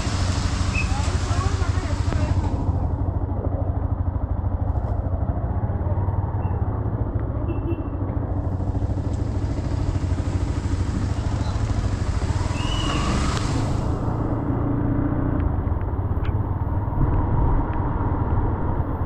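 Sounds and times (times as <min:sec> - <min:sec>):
tyre hiss on wet road: 0:00.0 - 0:02.7, 0:08.5 - 0:14.2
motorcycle engine running: 0:00.0 - 0:18.3
wind rush: 0:15.5 - 0:19.0.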